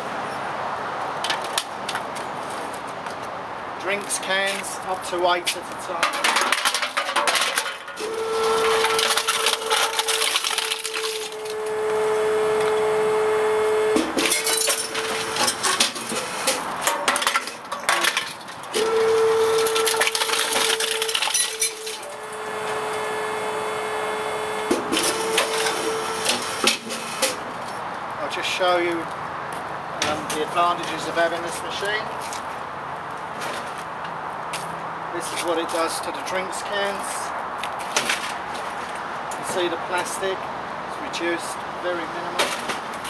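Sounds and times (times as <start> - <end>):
compactor crushing cans: 5.9 - 27.4.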